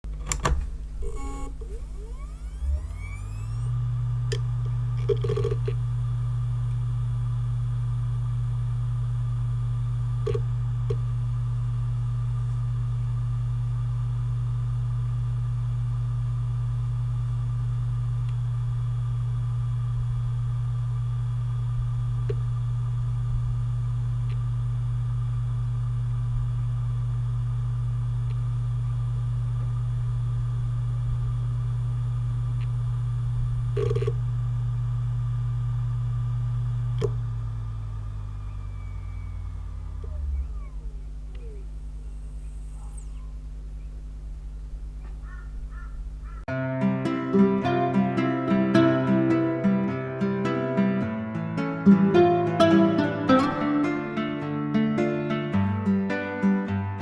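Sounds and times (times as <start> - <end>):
hard drive humming: 0.0 - 46.5
faint hard drive clicks: 10.1 - 11.2, 22.0 - 22.6, 32.5 - 32.8, 33.6 - 34.3, 36.8 - 37.3, 38.3 - 46.4.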